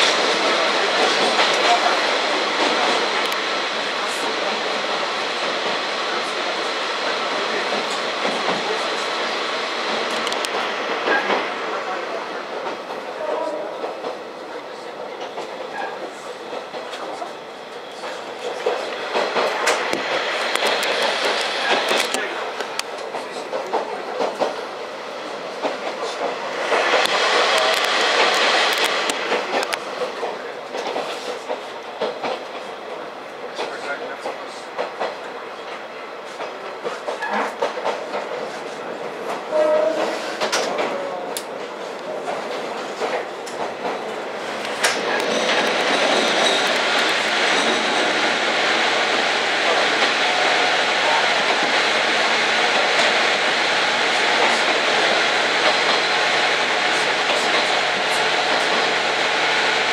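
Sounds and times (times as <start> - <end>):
sharp rail clicks: 0.0 - 13.1, 18.0 - 24.6, 25.5 - 32.7, 40.0 - 59.1
railcar running noise: 0.0 - 59.9.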